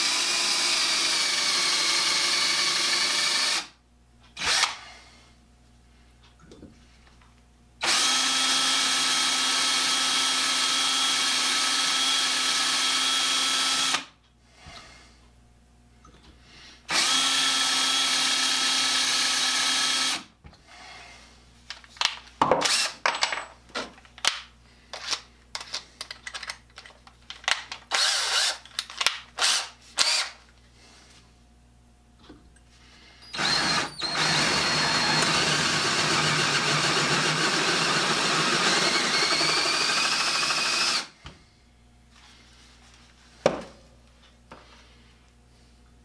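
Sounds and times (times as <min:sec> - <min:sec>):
drill boring into steel: 0:00.0 - 0:03.7, 0:04.4 - 0:04.8, 0:07.8 - 0:14.1, 0:16.9 - 0:20.2, 0:27.9 - 0:28.6, 0:29.4 - 0:30.4, 0:33.2 - 0:41.1
short drill bursts and clicks: 0:00.0 - 0:03.7, 0:04.4 - 0:04.8, 0:07.8 - 0:14.1, 0:16.9 - 0:20.3, 0:22.6 - 0:23.0, 0:27.9 - 0:28.6, 0:29.4 - 0:30.4, 0:33.2 - 0:41.1.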